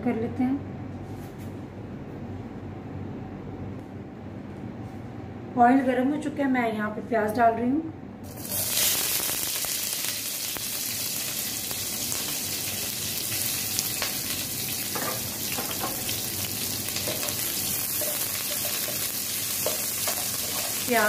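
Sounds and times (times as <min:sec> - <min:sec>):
onions sizzling in oil: 0:08.3 - 0:21.0.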